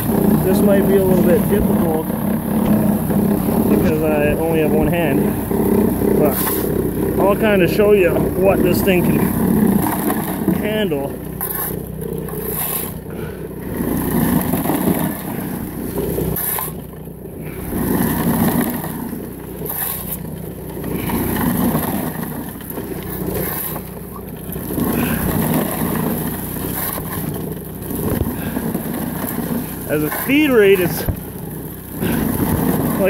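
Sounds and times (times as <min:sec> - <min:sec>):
water pump engine running: 0:00.0 - 0:33.0
shovel scraping into gravelly dirt: 0:11.4 - 0:13.1, 0:23.2 - 0:23.8.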